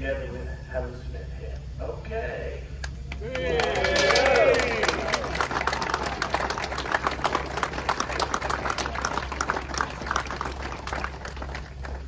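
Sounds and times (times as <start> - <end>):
crowd applauding: 3.1 - 12.0.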